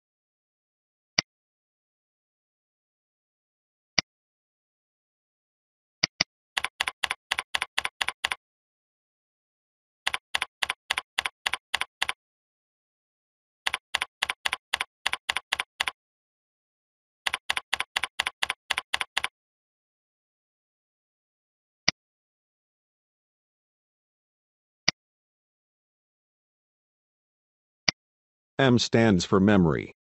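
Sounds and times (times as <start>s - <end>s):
keyboard typing: 6.0s - 8.4s, 10.1s - 12.2s, 13.7s - 16.0s, 17.2s - 19.3s.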